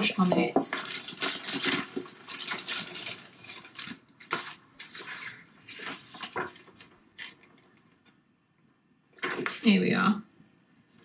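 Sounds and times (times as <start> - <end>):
plastic bag crinkling: 0.0 - 7.7.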